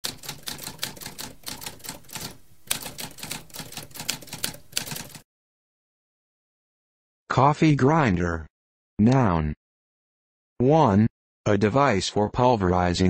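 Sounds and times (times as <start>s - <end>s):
typewriter keystroke clicks: 0.0s - 5.2s.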